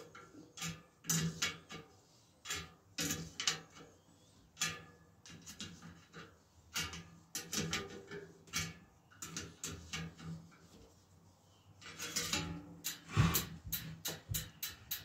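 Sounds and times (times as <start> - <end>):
metallic clicks and scrapes: 0.0 - 4.0, 4.6 - 15.0
gloved hands brushing spokes: 5.3 - 15.0.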